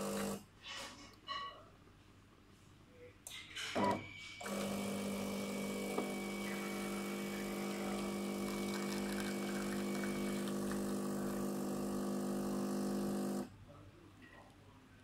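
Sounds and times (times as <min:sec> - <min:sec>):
espresso machine pump humming: 0:00.0 - 0:00.4, 0:04.4 - 0:13.5
espresso streaming into glass: 0:00.0 - 0:00.4, 0:04.4 - 0:13.4.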